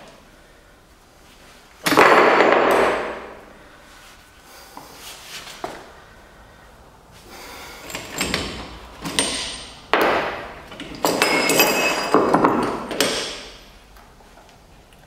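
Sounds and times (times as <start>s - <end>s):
steel clanking and clinking: 7.7s - 13.6s.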